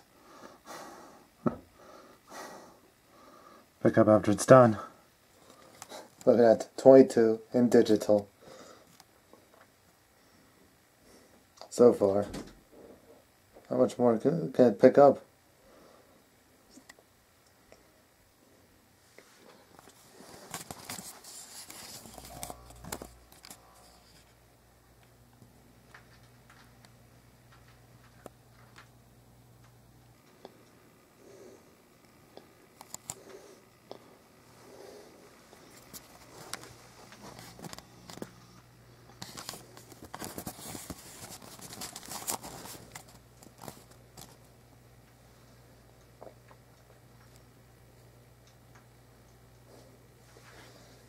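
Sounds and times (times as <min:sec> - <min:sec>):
steady low hum: 0:00.0 - 0:51.0
camera handling rustling and scraping: 0:19.8 - 0:24.3, 0:35.7 - 0:38.3, 0:39.2 - 0:44.4.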